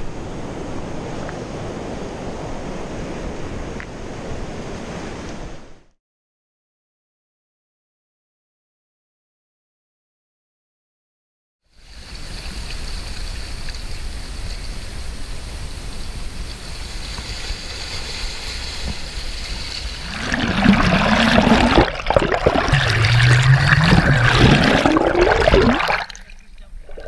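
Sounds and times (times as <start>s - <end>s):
underwater gurgling and sloshing: 12.0s - 27.0s
water washing over rocks: 16.6s - 27.0s.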